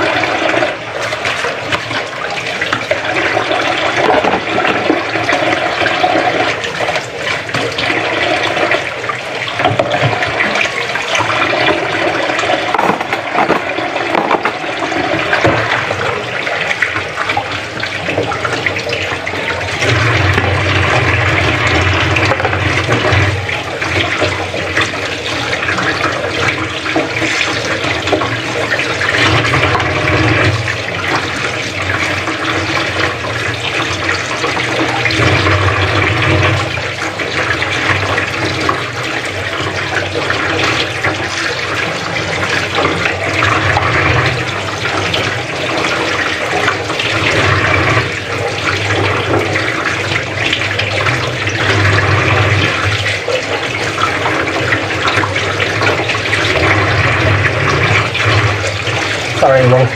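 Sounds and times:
hands rinsing fish: 0.0 - 30.0
tap water running into sink: 0.0 - 59.9.

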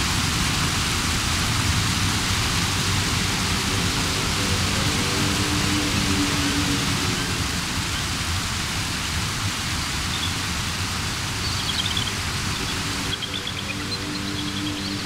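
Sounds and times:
rapids rushing water: 0.0 - 15.0
music with high chirping notes: 3.0 - 8.2, 11.4 - 15.0.

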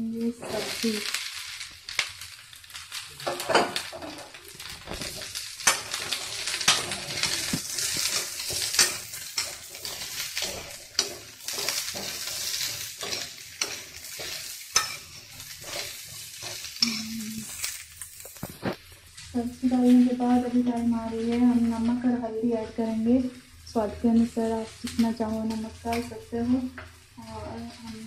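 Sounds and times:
vegetables sizzling in hot oil: 0.0 - 28.0
metal spatula scraping a pan: 3.2 - 19.1.

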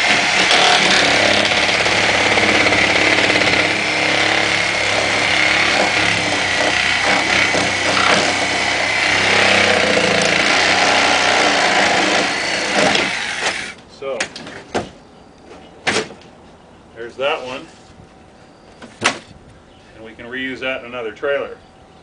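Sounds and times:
reciprocating saw cutting screws: 0.0 - 13.8.

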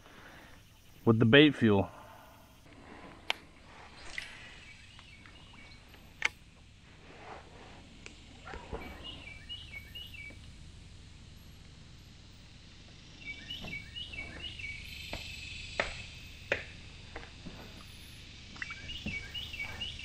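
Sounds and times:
bird chirping: 4.0 - 6.3, 8.4 - 10.4, 12.8 - 16.5, 17.8 - 20.0.

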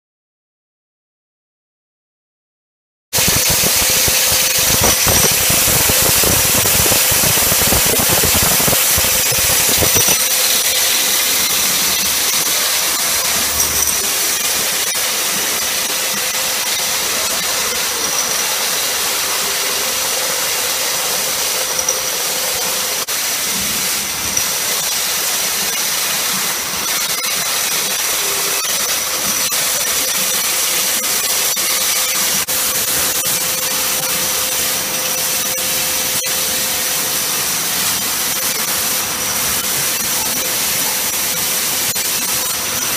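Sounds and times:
bottling line machinery: 3.2 - 42.9
high whine: 3.2 - 42.9.

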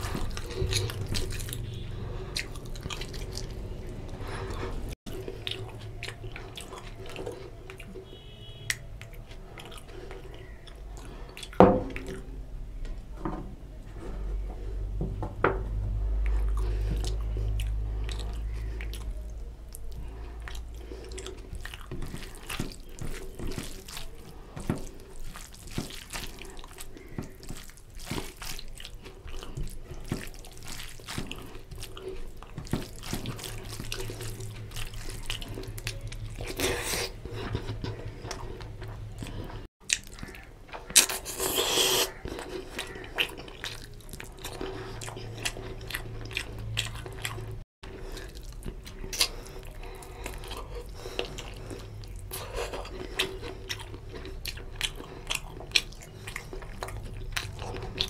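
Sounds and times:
chewing and mouth smacks: 0.0 - 12.3, 16.2 - 58.0
hand squishing rice: 16.4 - 38.8.

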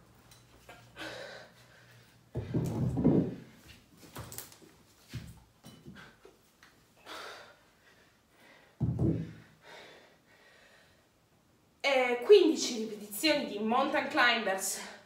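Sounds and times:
thuds on a wooden floor: 2.4 - 3.4, 8.8 - 9.4.

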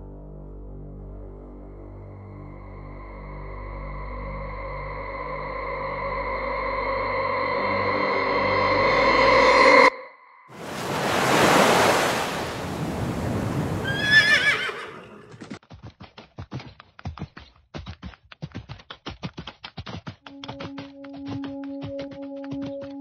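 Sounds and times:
surf: 10.6 - 14.2
horse whinny: 13.7 - 15.6
hooves clip-clopping: 13.9 - 23.0
held music chord: 20.3 - 23.0.

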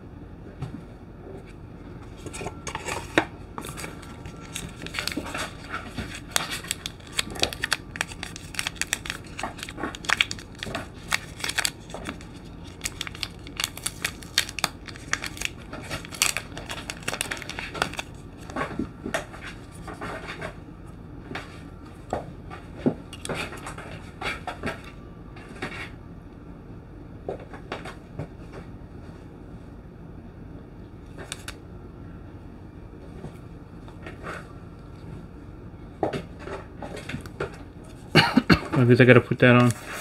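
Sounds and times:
paper and plastic crinkling: 2.2 - 20.4, 31.2 - 31.6, 39.5 - 40.0.

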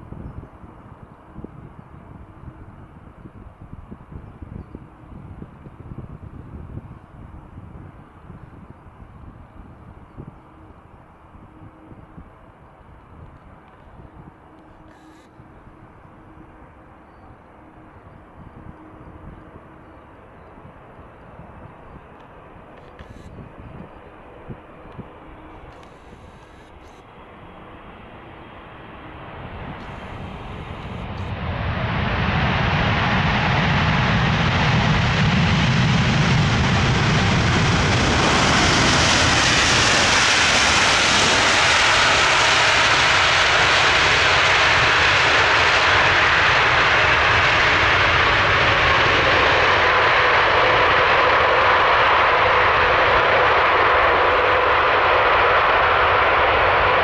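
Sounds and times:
faint falling whine: 9.4 - 44.6
jet engine roar: 10.0 - 57.0.

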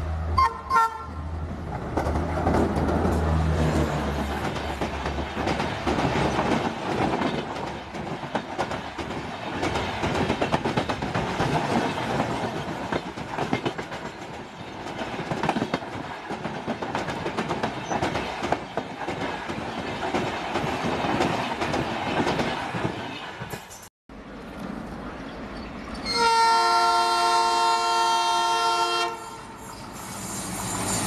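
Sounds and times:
train rolling rumble: 1.1 - 31.0
train wheels clattering over rail joints: 1.7 - 23.9.

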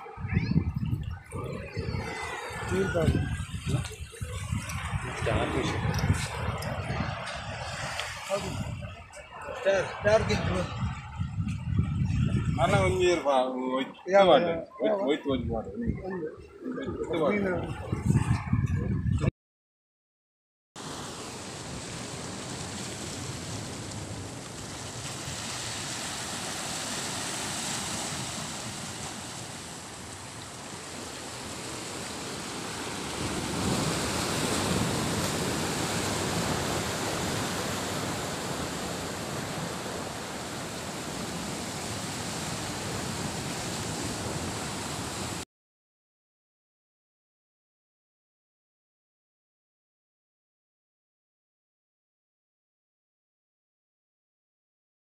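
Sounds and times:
surf washing over rocks: 0.0 - 11.8, 20.8 - 45.4.

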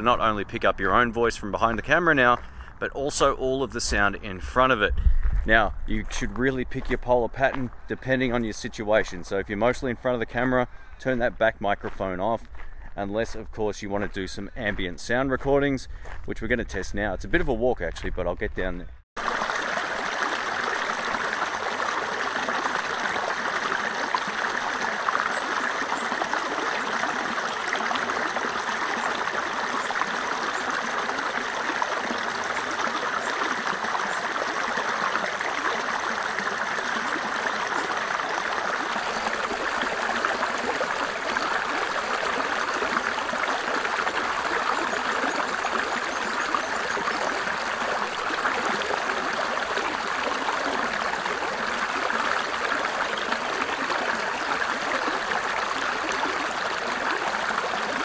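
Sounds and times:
water rushing over stones: 19.2 - 58.0.

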